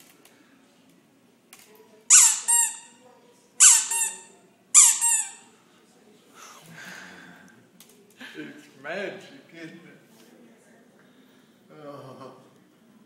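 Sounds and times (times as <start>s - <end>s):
high-pitched squeaks: 2.1s - 3.0s, 3.6s - 5.4s.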